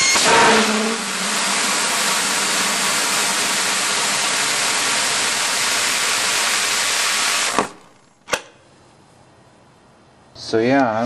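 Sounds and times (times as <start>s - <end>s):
rocket motor roaring: 0.0s - 8.1s.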